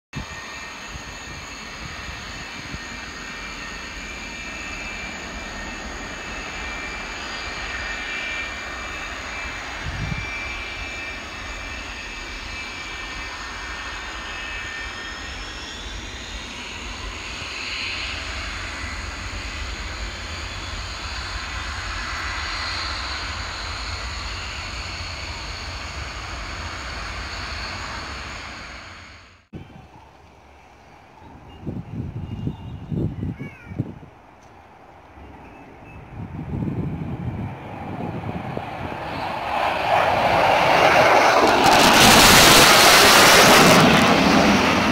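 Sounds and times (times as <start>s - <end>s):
high whistling tones: 0.2s - 33.3s
jet engine rushing: 0.2s - 44.9s.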